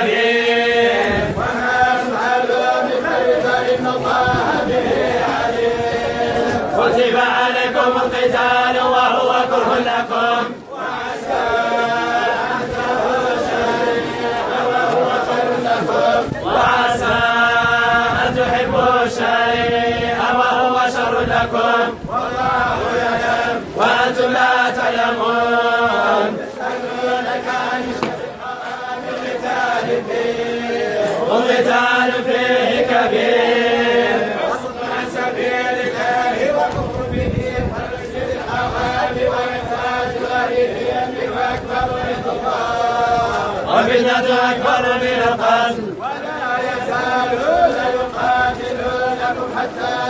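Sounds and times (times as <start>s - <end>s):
men chanting in unison: 0.0s - 50.0s.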